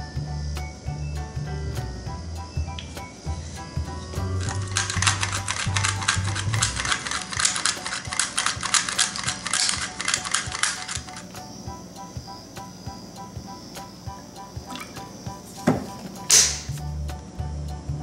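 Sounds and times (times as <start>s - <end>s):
background music: 0.0s - 18.0s
whisk clicking against a bowl: 4.6s - 11.3s.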